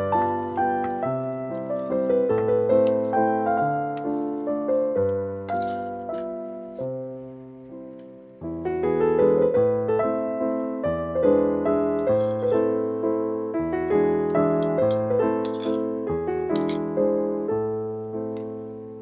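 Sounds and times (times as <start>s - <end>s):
gentle piano music: 0.0s - 19.0s.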